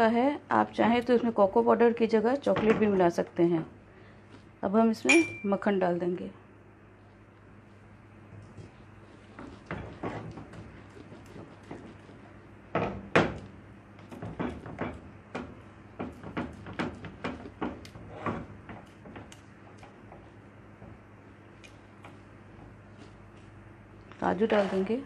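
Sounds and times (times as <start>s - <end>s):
spatula scraping metal pan: 24.4s - 25.0s.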